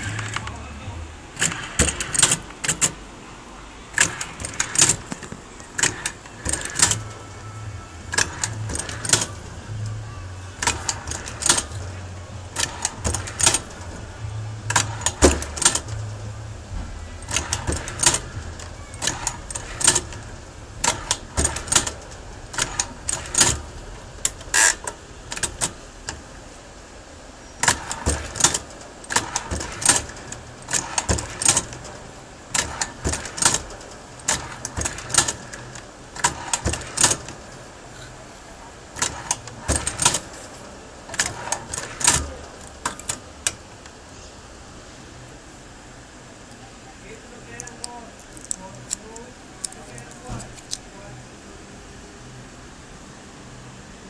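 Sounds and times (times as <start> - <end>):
embossing machine metallic clacks: 1.4 - 3.0, 3.9 - 7.2, 8.0 - 9.6, 10.6 - 14.0, 14.7 - 16.2, 17.2 - 26.3, 27.6 - 37.8, 38.8 - 44.0.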